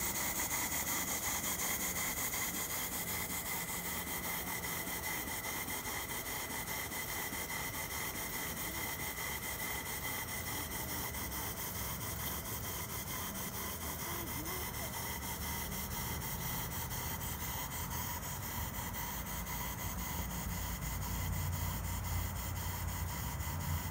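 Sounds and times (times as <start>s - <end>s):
steam engine exhaust beating: 0.0s - 23.9s
steam hiss: 0.0s - 23.9s.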